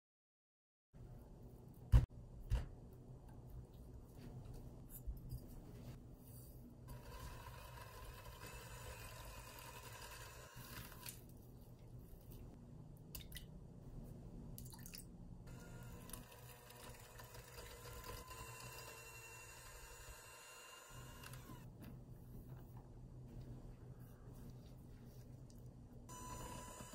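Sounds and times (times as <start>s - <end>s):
electric hand mixer whine: 6.9s - 11.1s, 15.5s - 21.6s, 26.1s - 26.9s.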